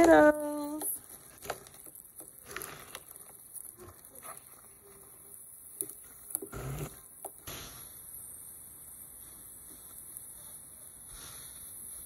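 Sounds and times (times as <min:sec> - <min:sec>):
spoon squishing potatoes: 0:00.0 - 0:07.4.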